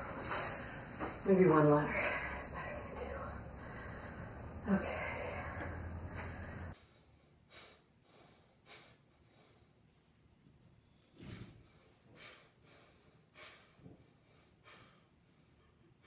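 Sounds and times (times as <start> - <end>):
room hum: 0.0 - 16.0.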